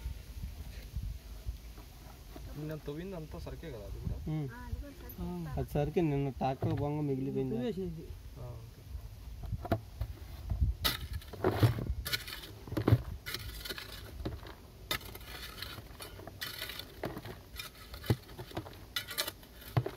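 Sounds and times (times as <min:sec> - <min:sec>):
hand hoe chopping into rock: 0:10.8 - 0:19.9.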